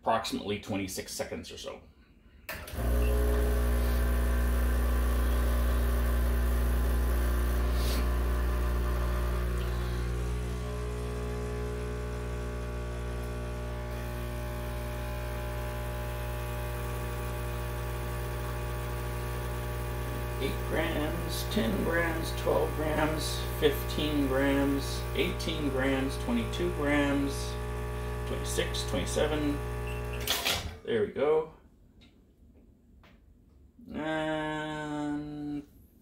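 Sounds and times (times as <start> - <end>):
espresso machine pump humming: 2.7 - 30.4.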